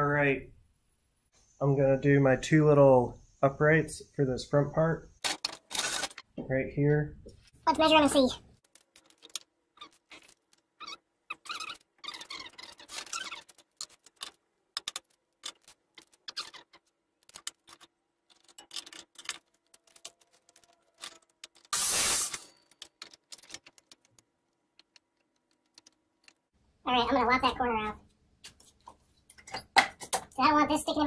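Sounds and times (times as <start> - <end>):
wooden pieces and tools clicking: 5.2 - 6.4, 8.5 - 26.6.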